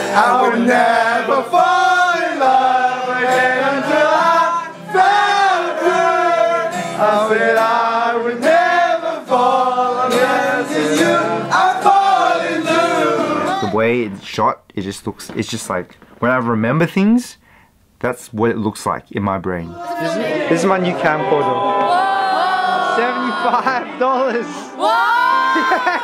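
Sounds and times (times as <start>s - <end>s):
young men singing along: 0.0s - 13.7s, 21.8s - 26.0s.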